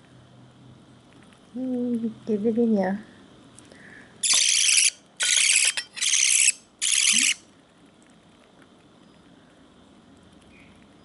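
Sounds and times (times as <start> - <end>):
budgerigar chick squealing: 4.2 - 7.4.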